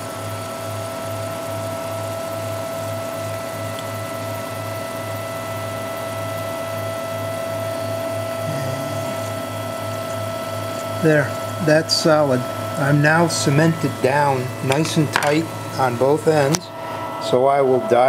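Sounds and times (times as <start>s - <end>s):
stepper motors whining: 0.0s - 18.0s
low repeating pulse: 7.6s - 18.0s.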